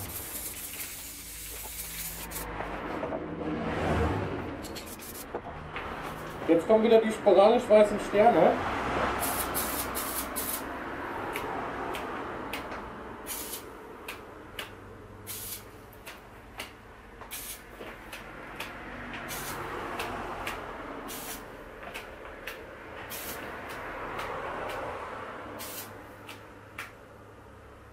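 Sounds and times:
aerosol spray can spurts: 0.0s - 2.5s.

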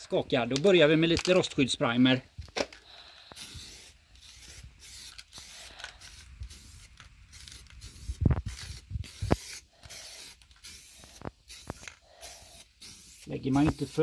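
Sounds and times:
aerosol spray can hissing: 3.2s - 14.0s.

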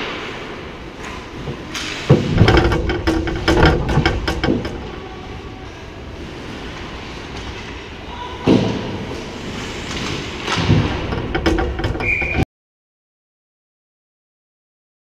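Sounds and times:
hockey sticks and puck clacking: 0.0s - 5.0s, 8.5s - 12.4s
rink noise: 1.3s - 7.7s, 8.6s - 12.4s.

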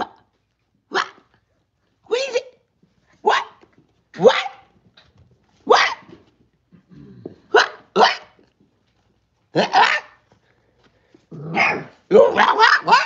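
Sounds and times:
puppy yipping: 11.5s - 13.0s.

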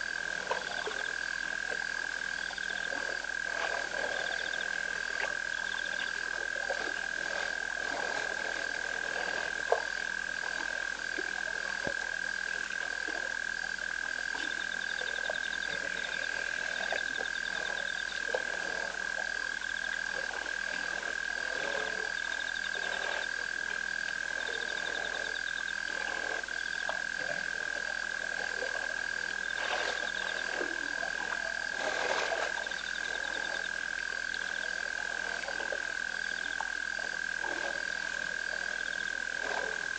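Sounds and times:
frogs trilling drone: 0.0s - 39.9s
frogs rattling calls: 4.0s - 4.8s, 14.5s - 18.2s, 22.1s - 23.3s.

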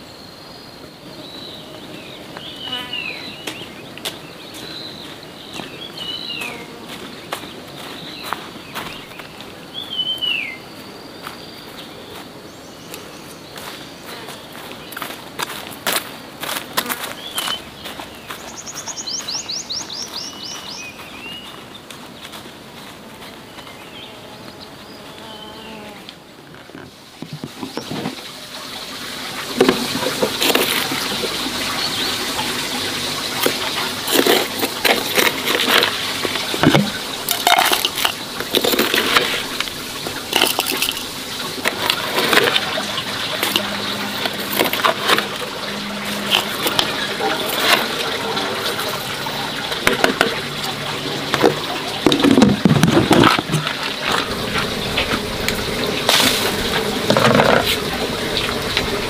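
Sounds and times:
water running and splashing: 1.2s - 25.1s, 26.9s - 59.0s
knocks and clatter: 33.3s - 58.9s.

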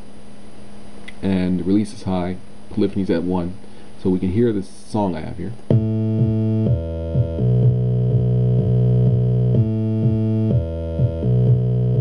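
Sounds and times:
square-wave synth bass: 5.7s - 12.0s
synthesized kick drum: 5.7s - 12.0s.

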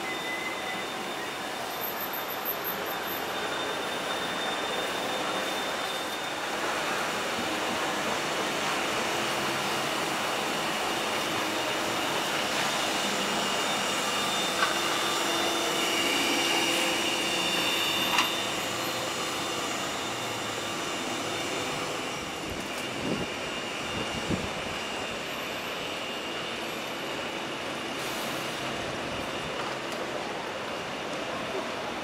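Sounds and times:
tram electric drive whine: 0.0s - 32.0s
tram rolling noise: 0.0s - 32.0s.

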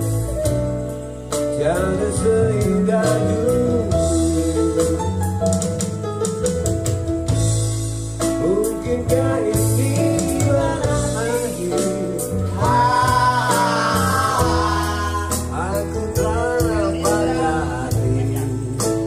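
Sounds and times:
electric bass guitar: 0.0s - 19.0s
keyboard: 0.0s - 19.0s
man singing into a microphone: 1.5s - 5.3s, 8.3s - 19.0s.

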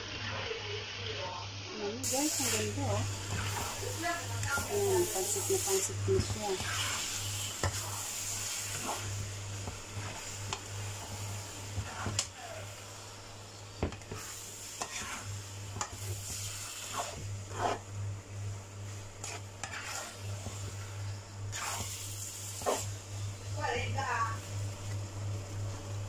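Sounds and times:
noodles sizzling in a wok: 0.0s - 26.0s
spatula scraping a pan: 2.0s - 12.8s, 13.8s - 18.0s, 18.9s - 23.4s
steady low hum: 2.1s - 26.0s.

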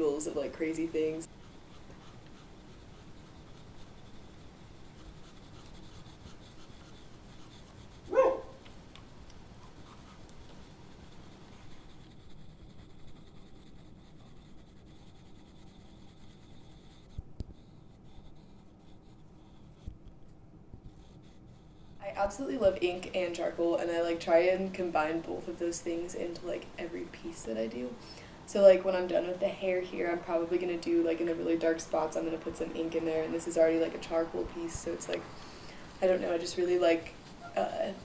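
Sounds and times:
pencil scratching on paper: 0.3s - 8.2s, 9.5s - 20.1s, 20.8s - 25.6s
dog bark: 8.1s - 8.6s.

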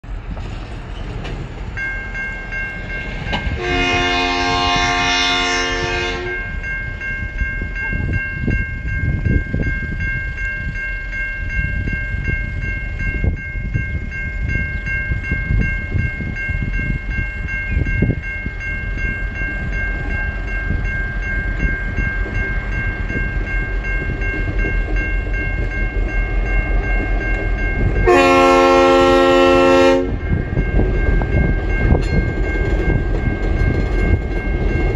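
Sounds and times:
diesel locomotive engines running: 0.0s - 10.3s
train chime horn blasts: 3.5s - 6.7s, 27.6s - 30.4s.

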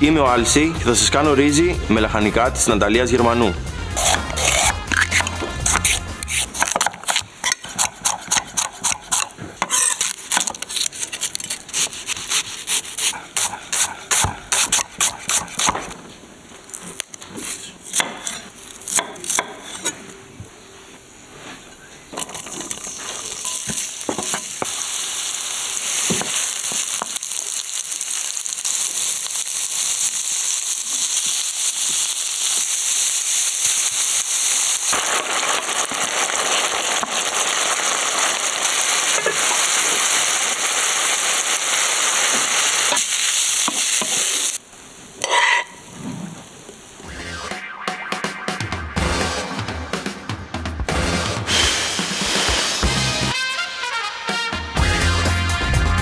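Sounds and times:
vegetables sizzling in oil: 3.9s - 11.2s, 22.2s - 46.0s
knife chopping on wooden board: 13.0s - 15.9s.

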